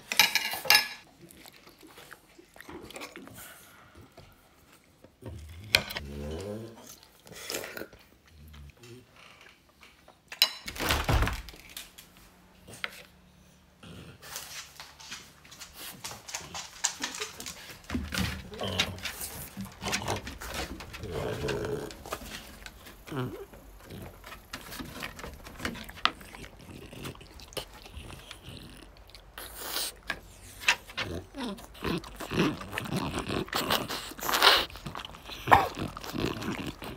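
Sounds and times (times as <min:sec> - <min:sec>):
bulldog sounds: 0:15.8 - 0:36.9.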